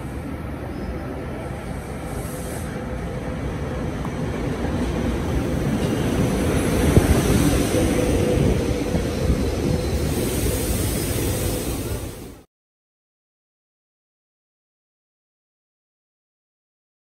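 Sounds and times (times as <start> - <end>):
train hum: 0.0 - 12.5
train wheels rumbling on rails: 0.0 - 12.5.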